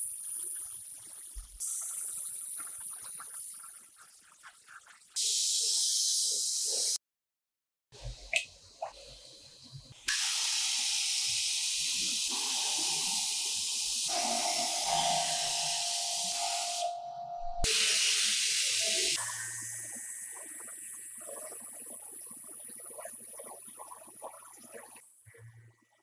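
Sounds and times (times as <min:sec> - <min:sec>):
paint spray gun hissing: 0:00.0 - 0:07.0, 0:10.1 - 0:16.9, 0:17.7 - 0:21.0.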